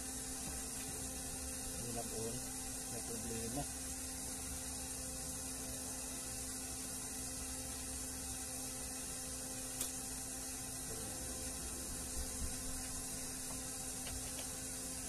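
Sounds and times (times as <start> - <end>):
electrical hum: 0.0 - 15.0.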